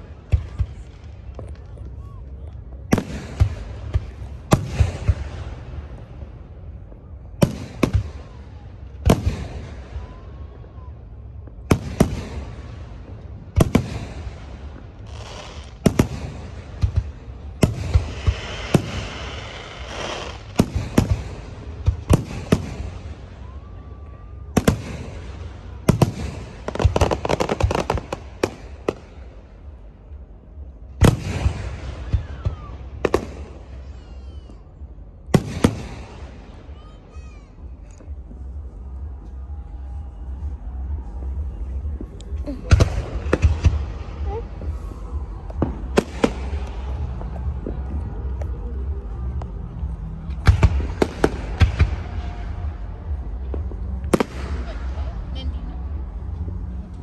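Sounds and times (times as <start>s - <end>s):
firework booms with echo: 2.8s - 10.2s, 11.6s - 23.2s, 24.6s - 29.2s, 31.0s - 34.0s, 35.3s - 36.7s, 41.8s - 55.1s
firework crackling: 11.3s - 29.8s, 30.6s - 57.0s.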